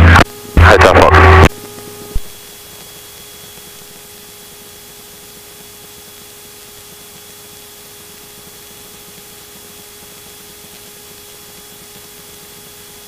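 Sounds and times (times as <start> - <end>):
radio hiss: 0.0 - 1.5.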